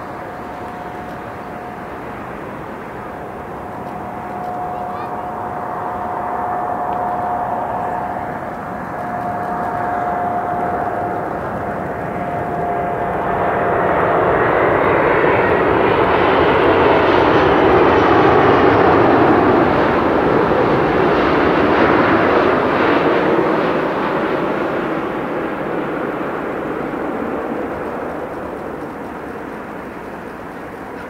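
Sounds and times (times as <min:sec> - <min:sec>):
jet airliner roar: 0:00.0 - 0:31.0.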